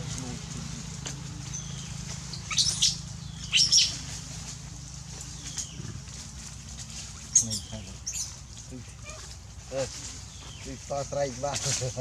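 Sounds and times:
steady low hum: 0.0 - 12.0
baby monkeys squealing: 2.3 - 4.1, 7.3 - 9.4.

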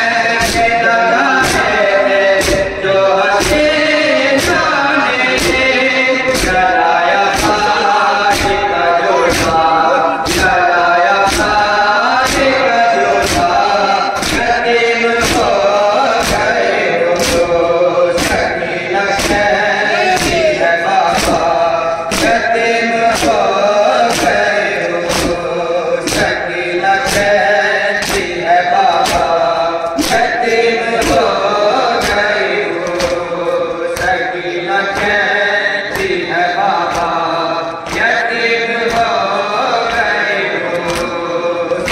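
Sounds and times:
men chanting together: 0.0 - 41.9
rhythmic chest-beating: 0.0 - 41.9.

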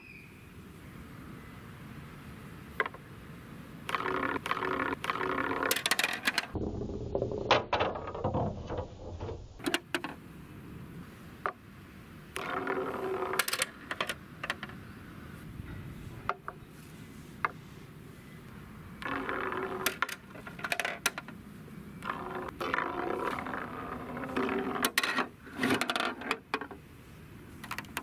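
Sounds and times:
plastic balls rolling on wood: 2.8 - 3.0, 3.9 - 10.2, 12.3 - 14.9, 19.0 - 26.8, 27.6 - 28.0
plastic toy clattering: 3.9 - 6.6, 12.4 - 14.8, 19.0 - 21.4, 22.0 - 26.8
balls knocking toy garage: 3.9 - 10.2, 19.0 - 21.3.

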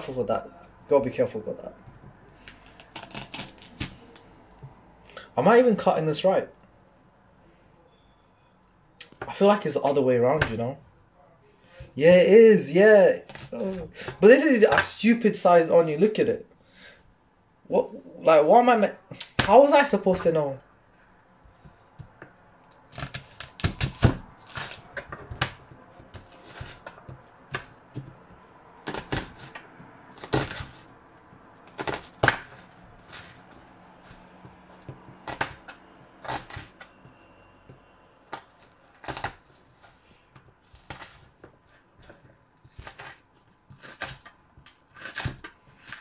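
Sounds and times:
knife chopping on a board: 23.0 - 30.8, 34.0 - 37.2, 42.0 - 46.0.

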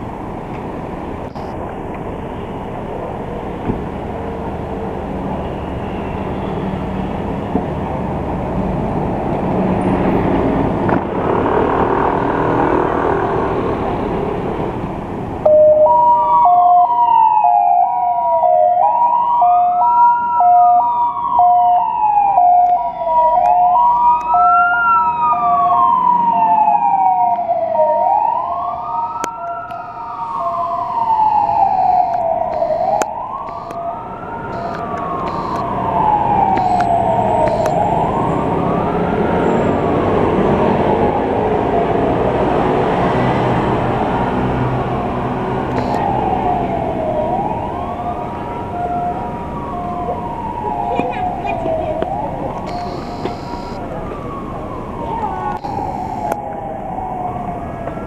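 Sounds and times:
traffic engines running: 0.0 - 58.0
two-tone hi-lo siren: 15.4 - 42.1, 44.8 - 58.0
wailing siren: 15.4 - 58.0.

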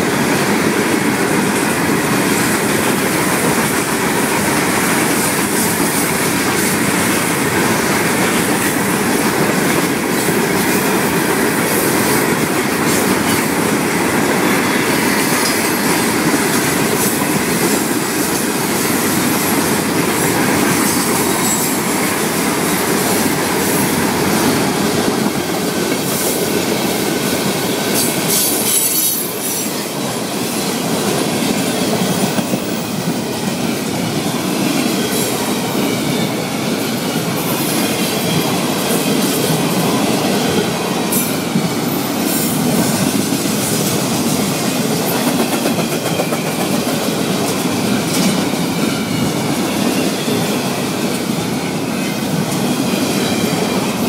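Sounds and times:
steel wheels running over rails: 0.0 - 54.0.

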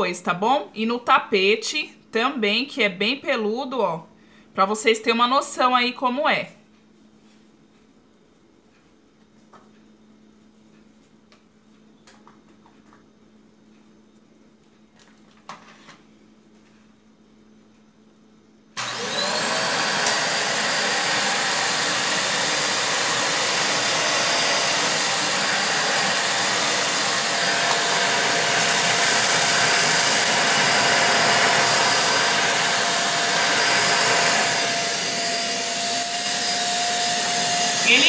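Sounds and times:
vacuum cleaner whine: 18.8 - 38.0.

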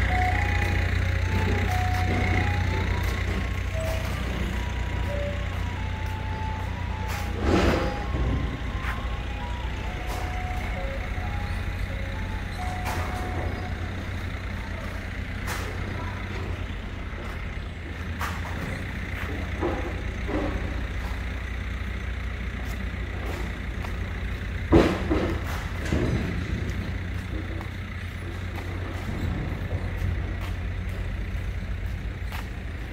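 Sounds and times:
heavy machinery engine rumble: 0.0 - 32.9.

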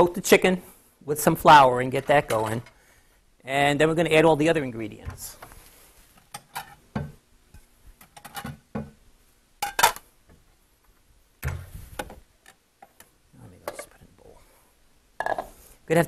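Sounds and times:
plate knocks and clinks: 15.2 - 15.5.

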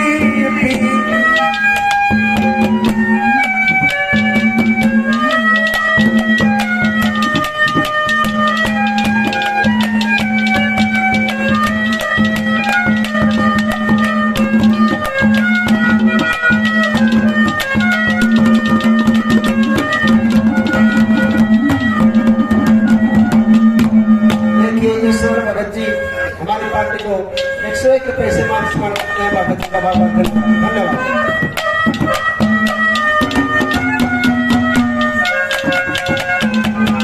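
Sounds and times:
reedy folk melody: 0.0 - 37.0
steady drone note: 20.0 - 24.3.

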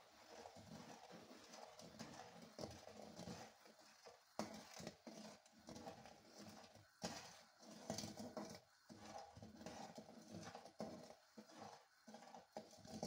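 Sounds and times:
metal spatula scraping pot: 0.0 - 13.0
water boiling: 0.0 - 13.0.

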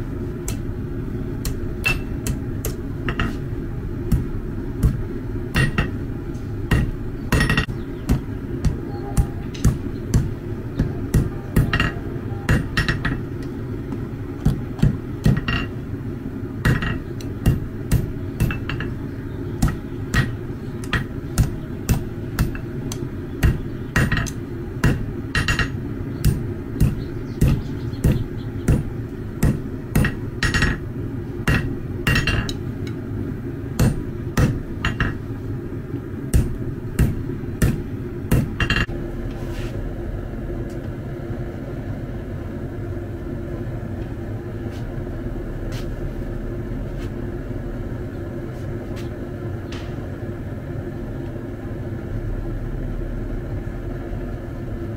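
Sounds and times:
low hum: 0.0 - 54.9
hammer striking steel on anvil: 0.4 - 0.7, 1.4 - 3.5, 4.1 - 6.0, 6.7 - 13.2, 14.4 - 15.8, 16.6 - 19.0, 19.6 - 30.8, 31.4 - 33.0, 33.8 - 35.2, 36.3 - 38.9.

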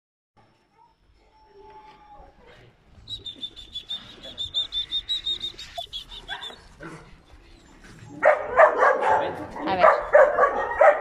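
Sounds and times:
dogs squealing: 4.9 - 6.8.

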